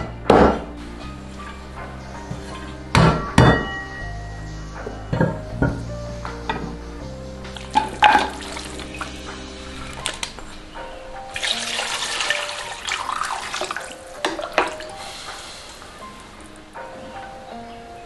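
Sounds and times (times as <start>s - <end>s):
soft background music: 0.0s - 18.0s
water pouring into pot: 7.5s - 10.4s, 11.3s - 16.1s.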